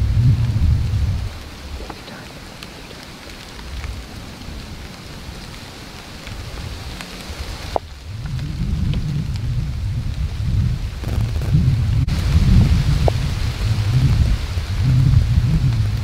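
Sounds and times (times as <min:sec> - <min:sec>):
rain on leaves: 0:00.0 - 0:16.0
wind rumble on microphone: 0:00.0 - 0:16.0.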